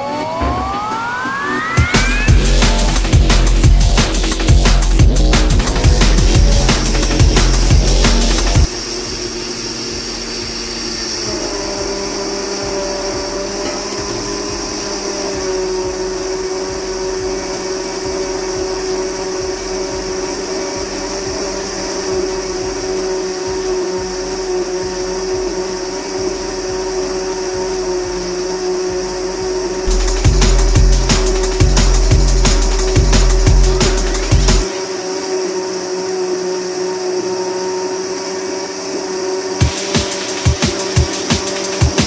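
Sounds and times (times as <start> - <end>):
mixer grinder grinding rice: 0.0 - 42.0.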